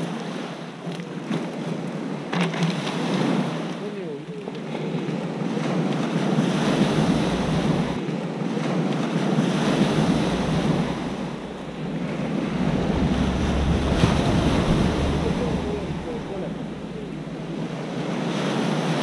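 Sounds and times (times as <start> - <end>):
waves washing up pebble beach: 1.2 - 19.0
wind buffeting microphone: 6.6 - 8.1, 8.7 - 19.0.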